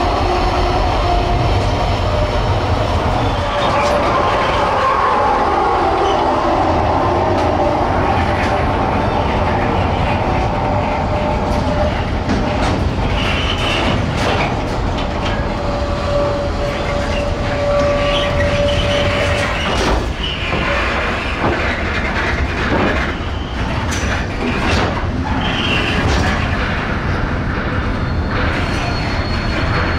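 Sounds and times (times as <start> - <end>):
train wheels rumbling and clacking: 0.0 - 29.9
thin wheel squeal: 16.1 - 20.6.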